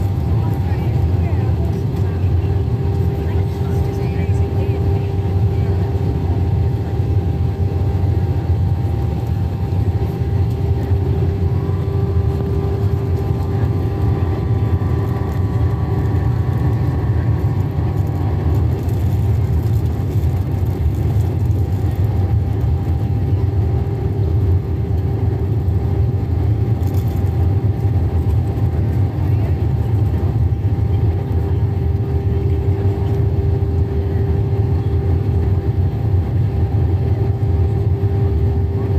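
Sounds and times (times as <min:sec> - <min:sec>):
airliner cabin engine drone: 0:00.0 - 0:38.9.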